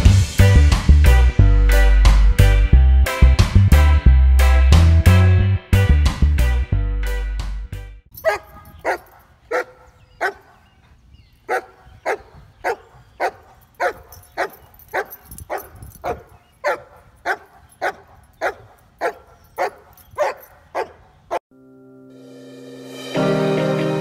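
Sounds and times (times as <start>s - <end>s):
dog barking: 8.2s - 10.8s, 11.5s - 21.4s.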